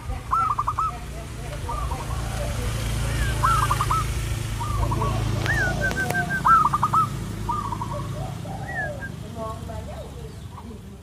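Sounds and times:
dove cooing: 0:00.0 - 0:11.0
sharp clicks: 0:05.3 - 0:06.2.

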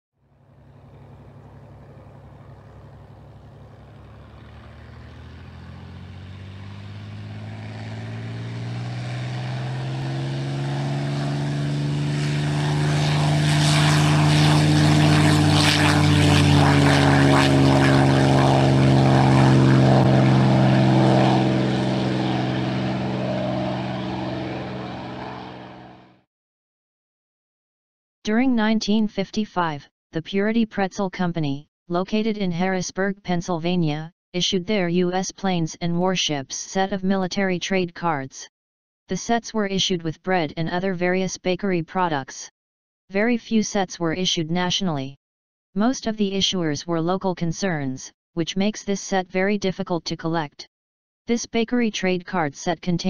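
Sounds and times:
propeller airplane flying past: 0:00.2 - 0:26.3.

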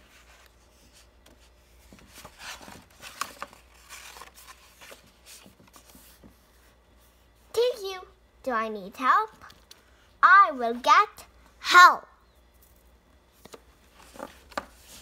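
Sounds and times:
book pages turning: 0:00.0 - 0:06.8, 0:13.3 - 0:15.0.

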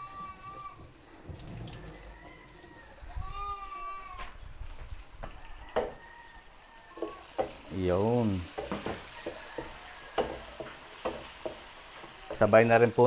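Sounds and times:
animal bleating: 0:00.0 - 0:00.9, 0:03.1 - 0:04.4.

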